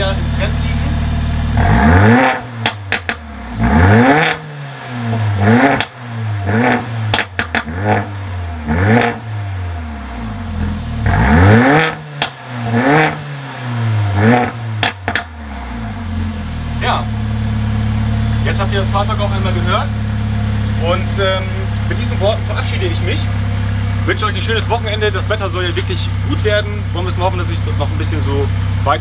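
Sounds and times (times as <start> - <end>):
car engine revving: 0.0 - 29.0
exhaust pops and crackles: 2.6 - 3.2, 5.6 - 6.0, 6.6 - 8.0, 12.2 - 12.4, 14.3 - 16.0, 20.7 - 28.2.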